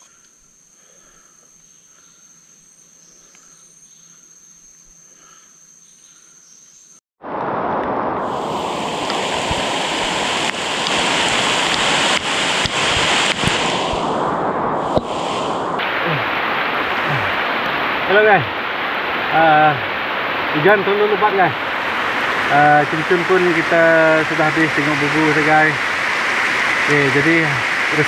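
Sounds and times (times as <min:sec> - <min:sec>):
high-pitched insect tones: 0:00.0 - 0:07.0
heavy rain pouring: 0:07.2 - 0:28.0.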